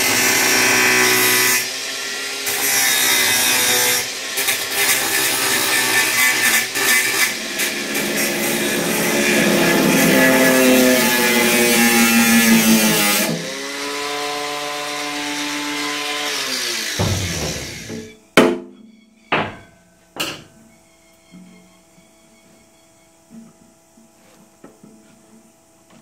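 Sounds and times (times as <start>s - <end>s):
angle grinder grinding metal: 0.0s - 18.3s
metallic knocks with ringing: 17.0s - 20.7s.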